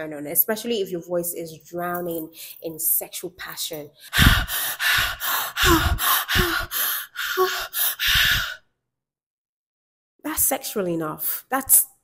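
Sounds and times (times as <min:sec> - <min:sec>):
woman panting: 0:04.0 - 0:08.6.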